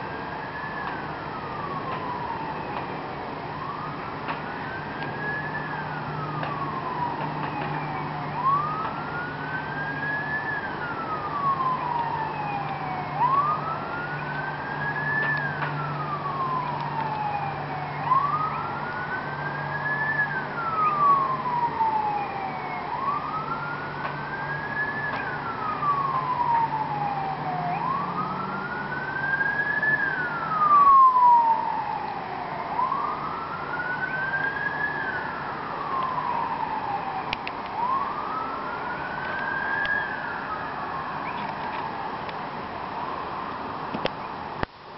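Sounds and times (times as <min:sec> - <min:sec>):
fire truck siren wailing: 0:00.0 - 0:44.1.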